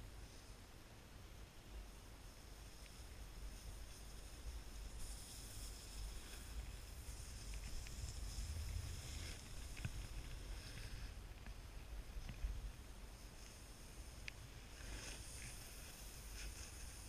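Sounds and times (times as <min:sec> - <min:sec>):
wind rumble on microphone: 0:01.8 - 0:17.0
snowboard scraping over snow: 0:03.4 - 0:17.0.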